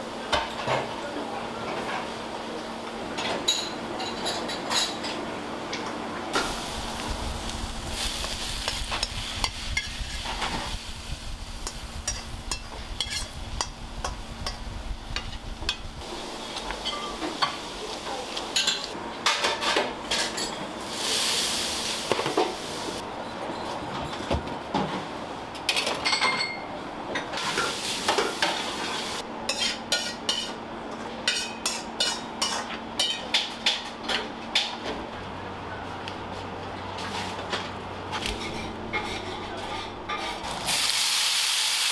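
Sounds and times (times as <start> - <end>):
food sizzling: 6.4 - 18.9, 20.8 - 23.0, 27.4 - 29.2, 40.4 - 41.9
low rumble: 6.5 - 16.0
utensils scraping a wok: 7.9 - 17.9, 27.4 - 30.6, 31.3 - 33.2, 38.2 - 40.9.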